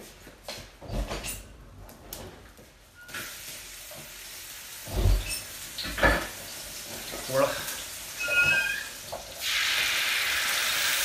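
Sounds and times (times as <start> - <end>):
oil sizzling in a wok: 3.1 - 11.0.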